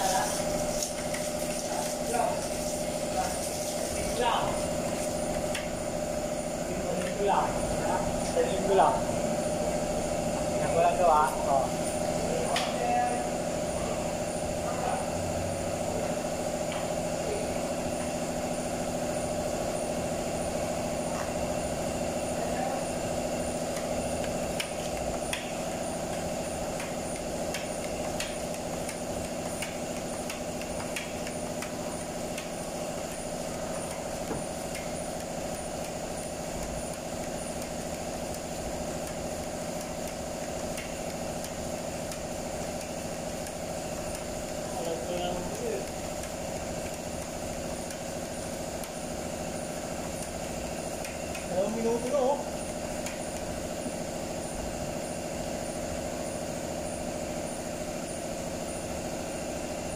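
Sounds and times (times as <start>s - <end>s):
machine humming: 0.0s - 59.9s
filler spreader tapping and scraping: 23.5s - 52.2s.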